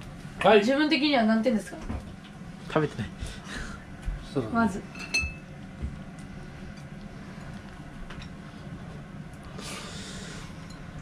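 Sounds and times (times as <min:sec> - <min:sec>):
low kitchen hum: 0:00.0 - 0:11.0
utensil clinking against dish: 0:04.9 - 0:05.4.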